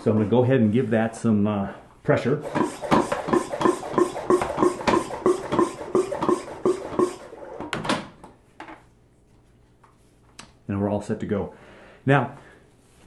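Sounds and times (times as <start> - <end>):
hand pump squeaking strokes: 2.4 - 7.7.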